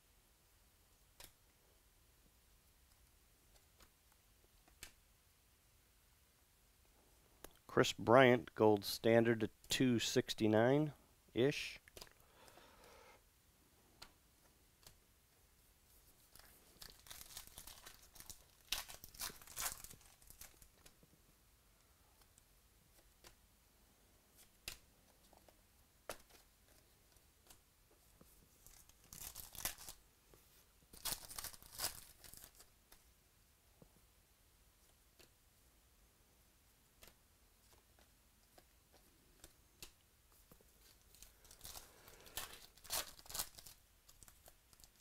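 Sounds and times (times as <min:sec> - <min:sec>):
cards rustling and scraping: 0:37.0 - 0:45.0.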